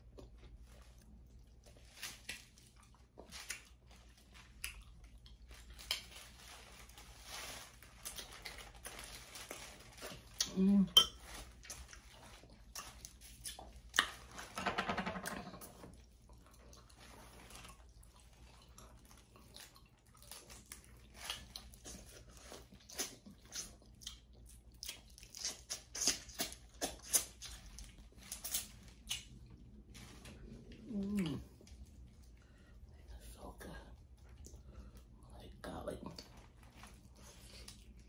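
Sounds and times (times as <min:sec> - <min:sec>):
wet chewing: 0:00.0 - 0:06.9, 0:11.4 - 0:14.3, 0:16.0 - 0:29.9, 0:36.1 - 0:38.0.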